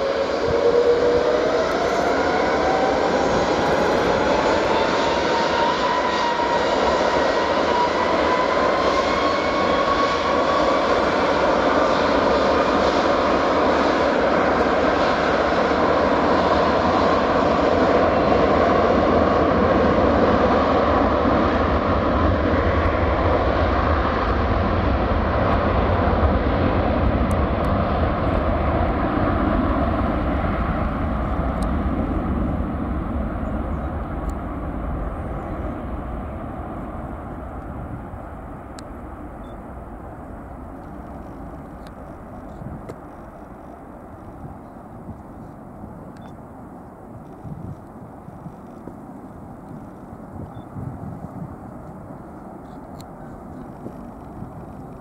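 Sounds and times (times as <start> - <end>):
jet engines at takeoff thrust: 0.0 - 55.0.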